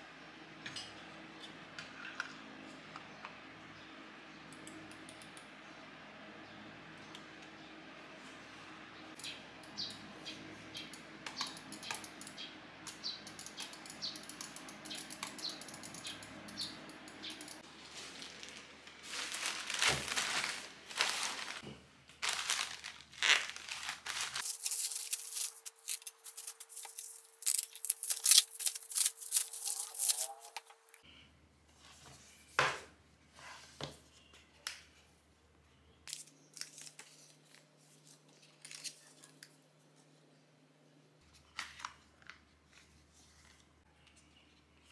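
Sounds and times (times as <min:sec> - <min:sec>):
plastic bag torn and crinkled: 0:17.9 - 0:21.6, 0:22.2 - 0:30.7.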